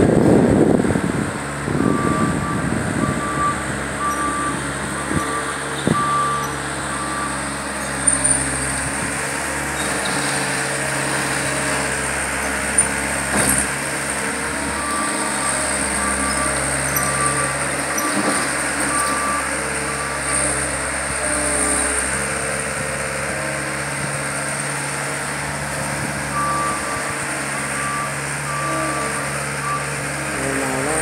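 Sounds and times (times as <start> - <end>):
diesel engine running: 0.0 - 31.0
reversing alarm beeping: 1.7 - 8.4, 14.2 - 22.0, 26.2 - 31.0.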